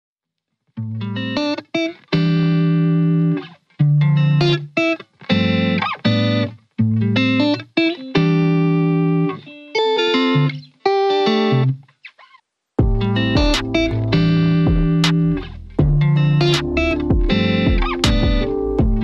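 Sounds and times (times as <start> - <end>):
background music sustained chords: 12.8 - 19.0.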